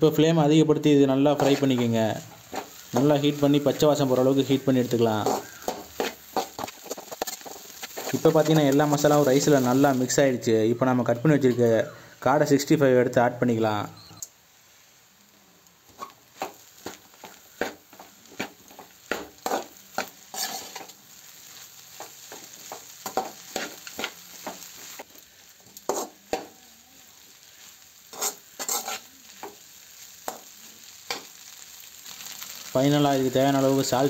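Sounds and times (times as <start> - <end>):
faint sizzle of frying: 0.0 - 34.0
metal spatula scraping a pan: 1.3 - 9.8, 18.4 - 25.0, 25.7 - 26.6, 27.6 - 29.7.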